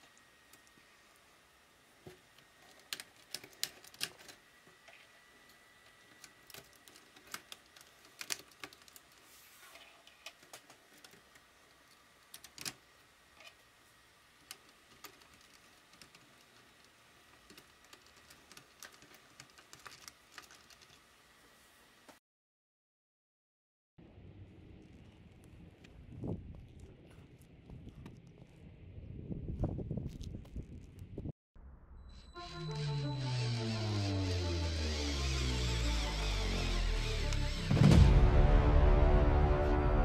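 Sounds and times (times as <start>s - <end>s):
plastic pieces clicking together: 2.6s - 4.4s, 6.1s - 9.2s, 12.3s - 12.8s, 14.4s - 21.0s.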